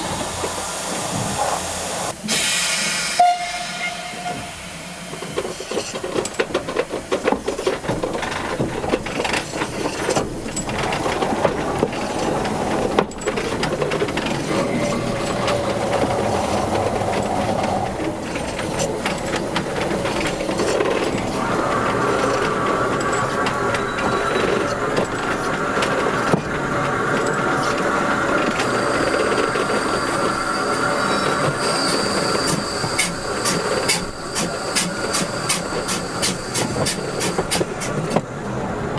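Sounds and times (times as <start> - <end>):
steam locomotive wheels clattering: 0.0 - 38.9
steady wheel squeal: 11.7 - 38.2.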